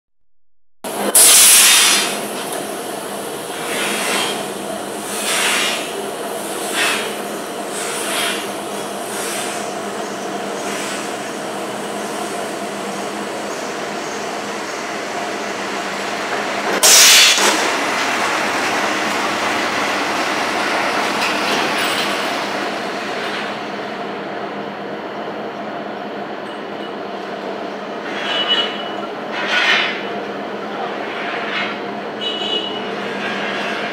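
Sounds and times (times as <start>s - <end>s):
rebar cutting machine running: 10.6s - 24.0s.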